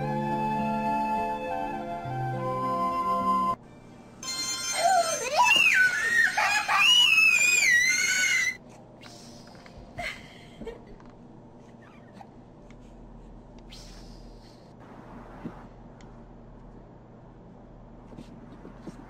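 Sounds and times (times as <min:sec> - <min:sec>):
toddler wailing: 0:04.6 - 0:08.6.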